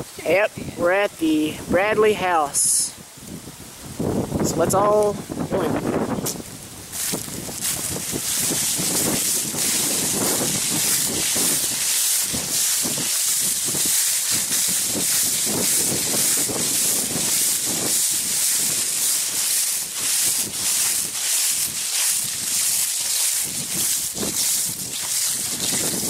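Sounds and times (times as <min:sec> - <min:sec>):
wind buffeting microphone: 0:02.8 - 0:26.0
steady hiss: 0:06.0 - 0:26.0
feet swishing through grass and leaves: 0:06.4 - 0:26.0.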